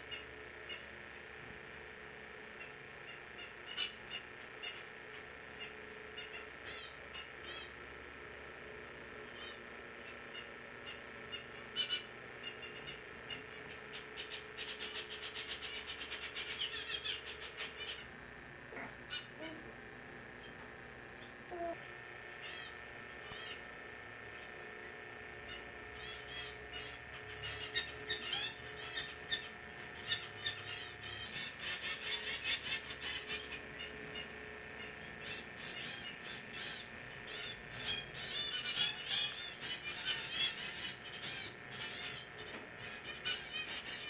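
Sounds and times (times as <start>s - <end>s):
faint steady hum: 0.0s - 44.0s
small songbirds chirping: 9.4s - 18.1s, 25.5s - 44.0s.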